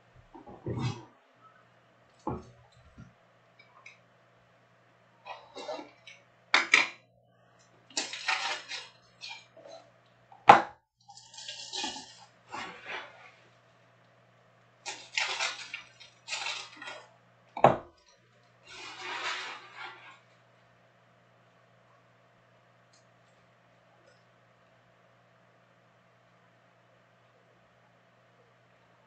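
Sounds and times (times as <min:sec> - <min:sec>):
plastic wrappers crinkling: 0:07.9 - 0:09.7, 0:11.1 - 0:13.3, 0:14.8 - 0:17.1, 0:18.4 - 0:20.2.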